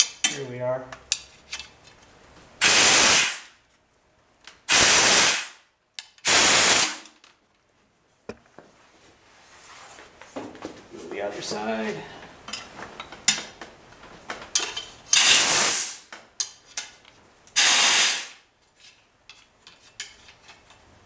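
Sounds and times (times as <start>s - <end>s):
compressed air blasts: 2.6s - 3.6s, 4.7s - 7.1s, 15.2s - 16.1s, 17.6s - 18.5s.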